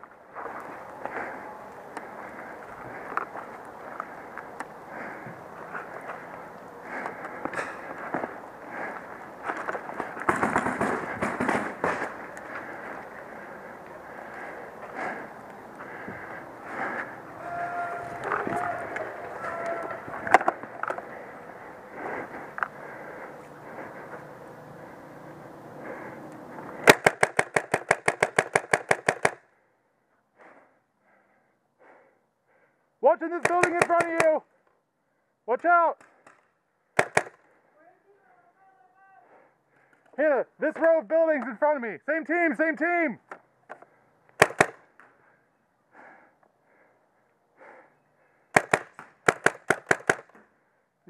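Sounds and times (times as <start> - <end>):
paintball marker firing rapidly: 10.2 - 12.1, 26.8 - 29.4, 33.4 - 34.4, 37.0 - 37.4, 44.4 - 44.9, 48.5 - 50.4.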